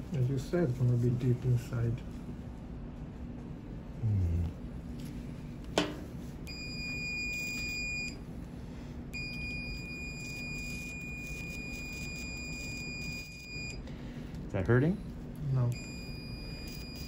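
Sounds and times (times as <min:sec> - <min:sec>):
high electronic activation tone: 0:09.2 - 0:13.8, 0:15.7 - 0:17.0.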